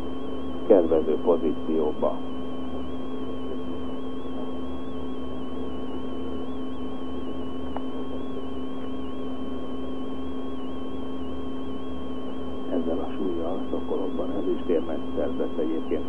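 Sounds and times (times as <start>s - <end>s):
steady electrical hum: 0.0s - 16.0s
low pulsing throb: 12.2s - 16.0s.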